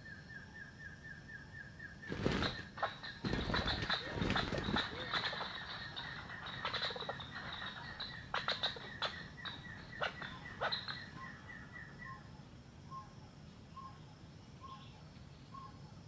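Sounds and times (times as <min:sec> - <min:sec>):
partridge whistled calls: 0:00.0 - 0:16.0.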